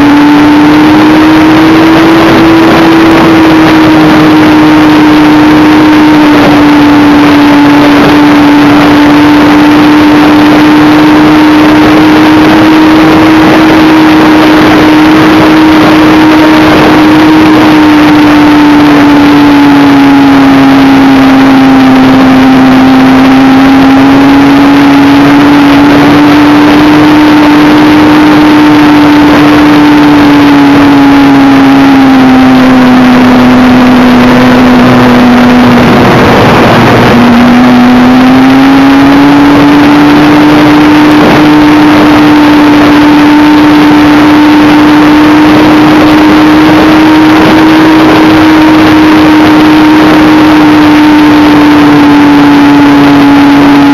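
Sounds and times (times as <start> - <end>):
model plane motor whine: 0.0 - 53.9
loud rushing air: 33.6 - 43.9.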